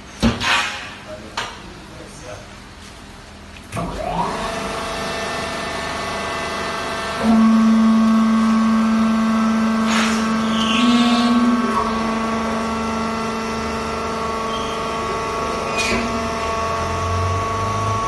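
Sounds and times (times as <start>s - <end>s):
hydraulic baler motor humming: 3.8s - 18.0s.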